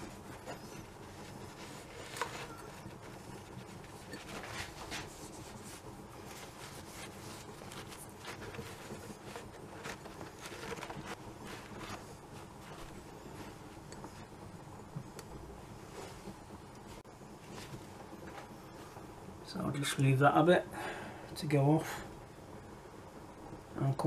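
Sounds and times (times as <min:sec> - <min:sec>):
cloth rubbing on metal tube: 0:00.0 - 0:19.0.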